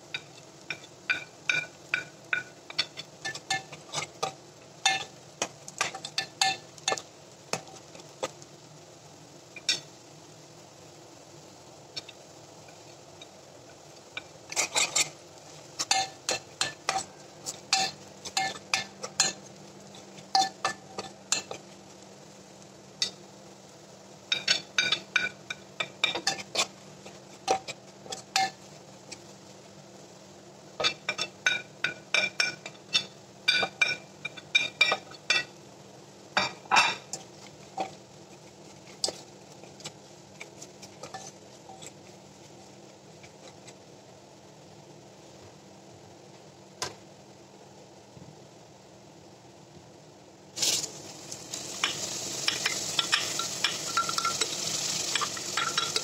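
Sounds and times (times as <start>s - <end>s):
onions frying: 0.0s - 56.0s
spoon clinking in metal pot: 51.8s - 56.0s.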